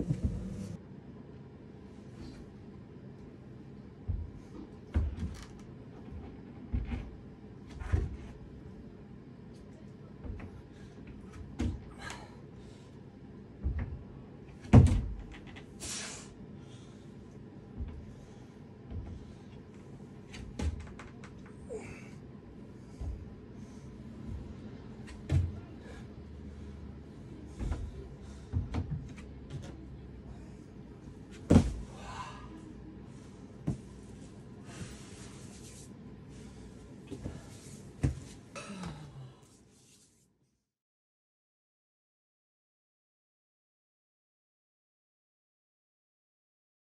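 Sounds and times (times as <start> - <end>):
hands and feet knocking on holds: 31.3 - 31.9
heavy thump of swinging feet: 31.3 - 32.1
body landing on crash pad: 31.4 - 31.9
soft thud: 31.5 - 31.8
person breathing hard: 31.8 - 33.5.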